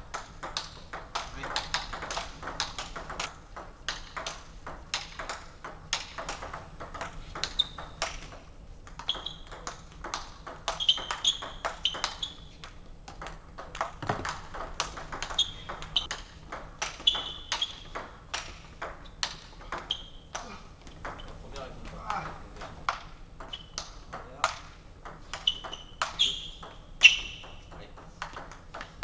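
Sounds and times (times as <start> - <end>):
ping pong ball clicking: 0.1 - 29.0
short high squeaks: 10.8 - 12.5, 15.3 - 16.1, 17.0 - 17.9, 23.5 - 23.8, 25.4 - 27.6.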